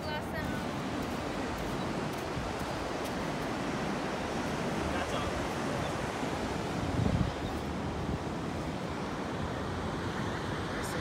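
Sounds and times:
wind noise on microphone: 0.0s - 8.6s
ocean surf breaking: 0.0s - 11.0s.

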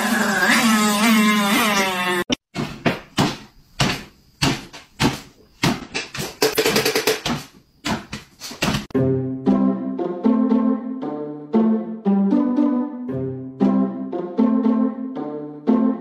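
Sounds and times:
music: 8.9s - 16.0s.

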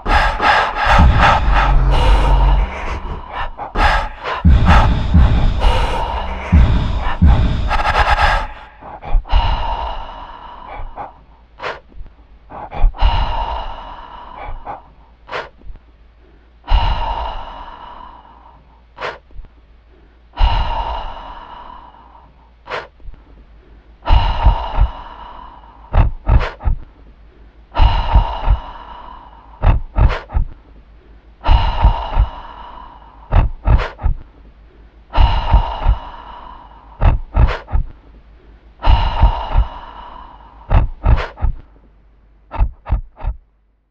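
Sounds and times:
sharp breath-like gasps: 0.0s - 19.3s, 19.9s - 23.0s, 31.4s - 34.2s, 35.1s - 41.6s.

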